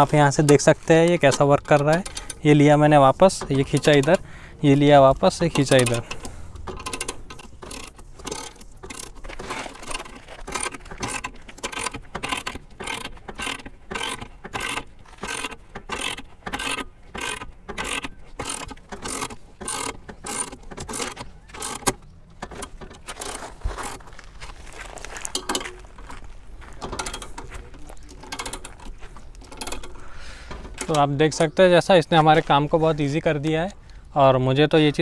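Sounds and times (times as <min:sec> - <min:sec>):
ratchet wrench clicking: 0:00.4 - 0:04.3, 0:05.2 - 0:24.0, 0:28.2 - 0:31.0.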